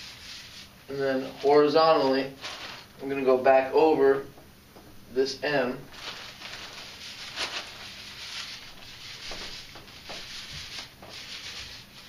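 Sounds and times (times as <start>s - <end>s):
paint roller rubbing on wall: 0.0s - 2.9s, 6.0s - 12.0s.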